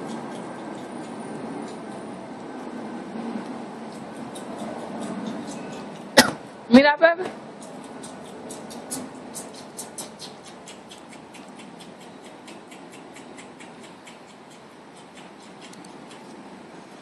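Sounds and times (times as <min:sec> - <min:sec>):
steady background noise: 0:00.0 - 0:17.0
rapid light clicking: 0:03.9 - 0:06.2, 0:07.6 - 0:16.4.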